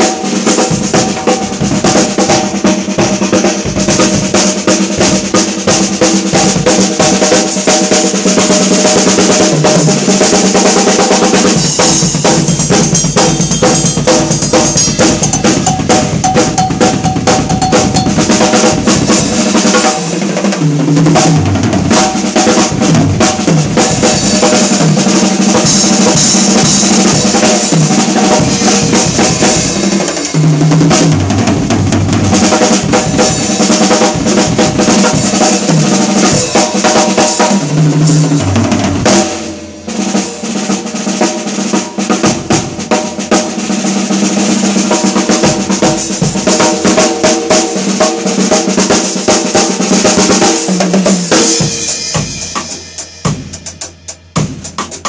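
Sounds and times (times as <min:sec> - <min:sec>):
snare drum rolls and rimshots: 0:00.0 - 0:55.0
bass drum: 0:11.2 - 0:19.8, 0:20.8 - 0:36.9, 0:50.9 - 0:55.0.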